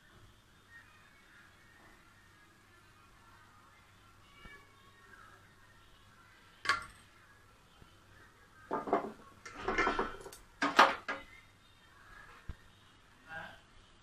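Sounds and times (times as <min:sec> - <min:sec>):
kitchen utensils clinking: 0:08.7 - 0:11.2.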